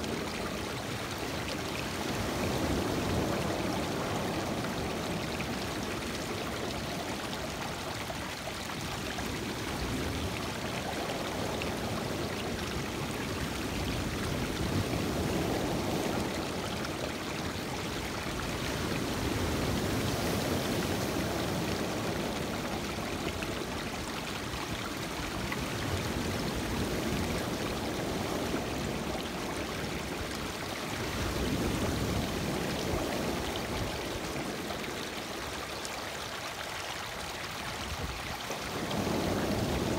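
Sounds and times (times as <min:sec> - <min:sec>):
waves washing over rocky shore: 0:00.0 - 0:36.2, 0:37.2 - 0:39.9.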